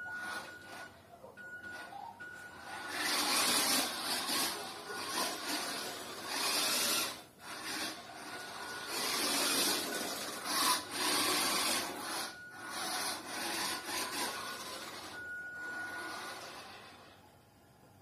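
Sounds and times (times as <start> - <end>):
toy car motor rasping on tile: 0.0 - 0.9, 1.7 - 17.2.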